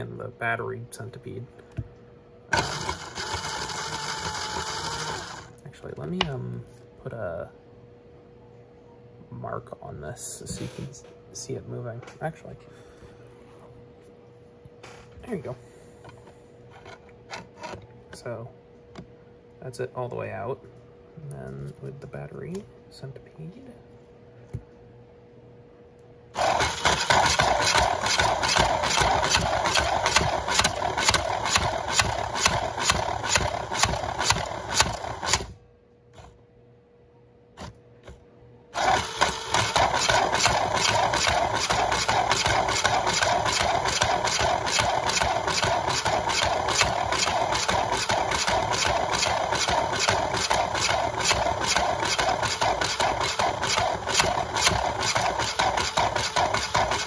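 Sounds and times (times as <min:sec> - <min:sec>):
small electric motor rattling ticks: 0:02.5 - 0:05.5, 0:26.4 - 0:35.5, 0:38.8 - 0:57.0.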